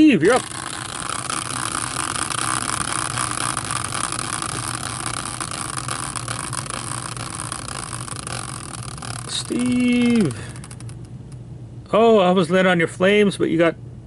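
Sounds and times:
caster wheel whirring: 0.2 - 11.2.

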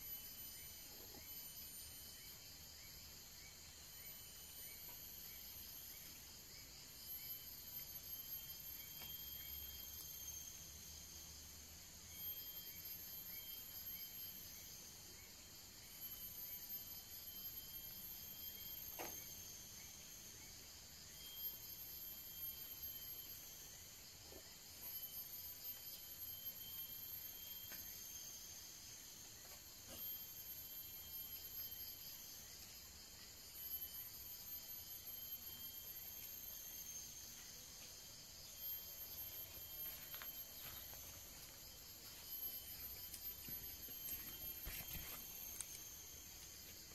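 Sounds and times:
chorus of forest insects: 0.0 - 46.9
small chirps: 29.2 - 46.9
footsteps in grass: 43.2 - 45.8.

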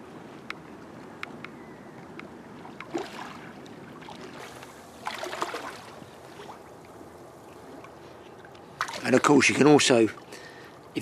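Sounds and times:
water lapping against steps: 2.2 - 11.0.

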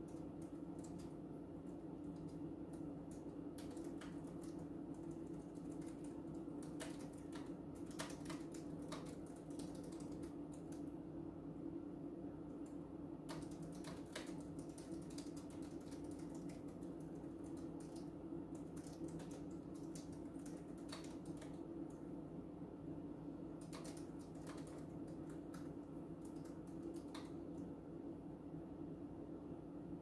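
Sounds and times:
low steady hum: 0.0 - 30.0
keyboard key clicks: 13.3 - 21.6, 23.6 - 27.5.

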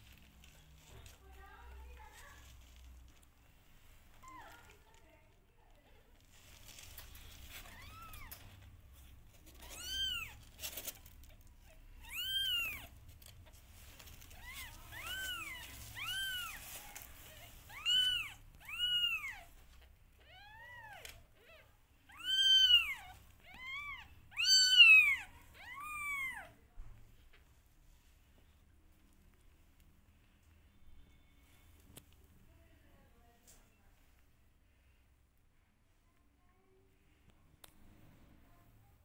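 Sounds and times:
kittens mewing: 20.2 - 26.5.

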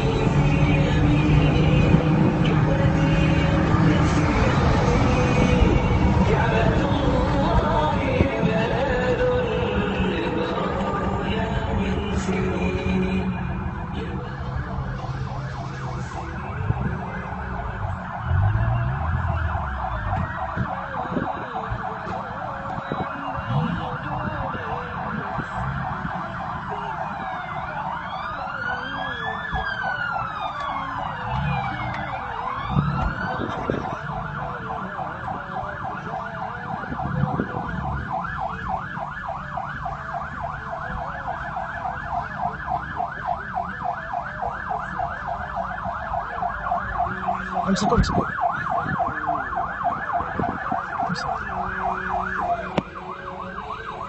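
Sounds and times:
police siren yelp: 0.0 - 54.0
traffic rumble: 0.0 - 54.0
wailing siren: 0.0 - 54.0.

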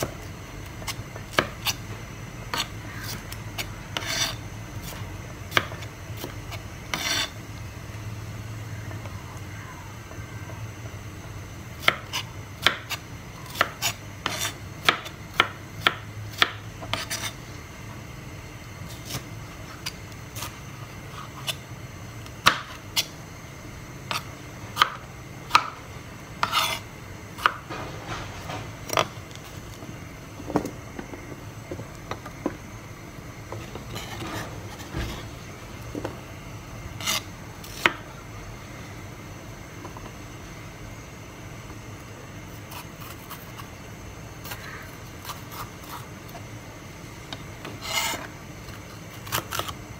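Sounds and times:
knife chopping on cutting board: 0.8 - 1.8, 11.8 - 17.3, 26.4 - 26.8.

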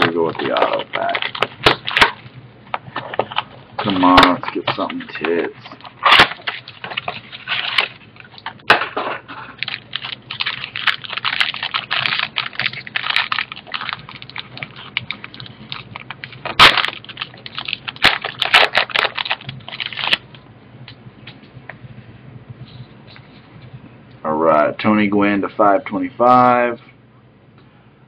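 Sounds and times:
plastic wrapper crinkling and tearing: 0.0 - 2.2, 2.9 - 8.7, 9.4 - 20.4.

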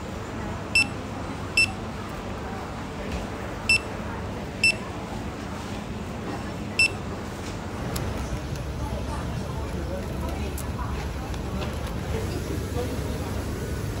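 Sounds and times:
barcode scanner beeps: 0.7 - 1.0, 1.6 - 1.8, 3.7 - 4.0, 4.6 - 4.8, 6.8 - 7.0.

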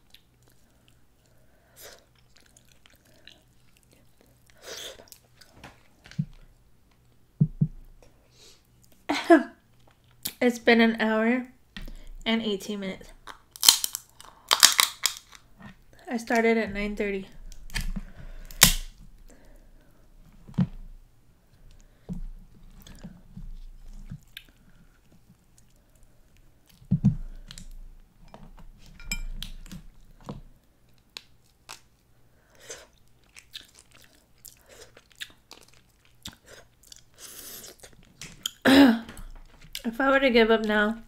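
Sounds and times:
chewing: 2.0 - 5.6, 30.9 - 38.6
crab shells cracking: 13.2 - 15.5, 17.5 - 19.0.

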